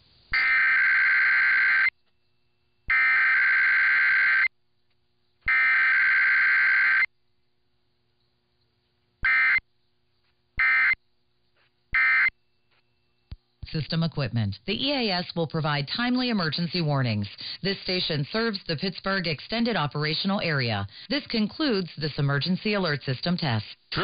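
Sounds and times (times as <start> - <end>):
buzzy data bursts over radio: 9.2 - 9.6, 10.6 - 11.0, 12.0 - 12.3.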